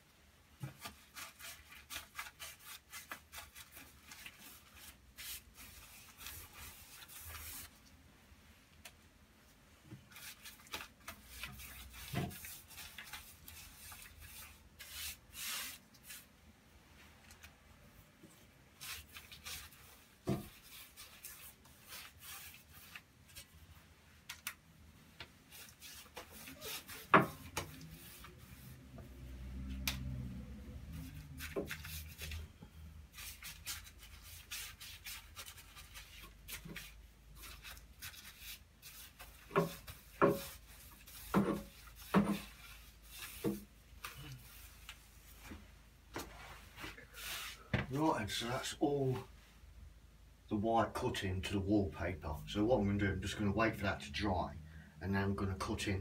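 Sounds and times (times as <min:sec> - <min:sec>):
paintbrush scraping on wall: 0:00.6 - 0:07.8, 0:10.1 - 0:16.3, 0:18.7 - 0:23.6, 0:25.3 - 0:30.1, 0:30.8 - 0:45.6, 0:46.2 - 0:48.1.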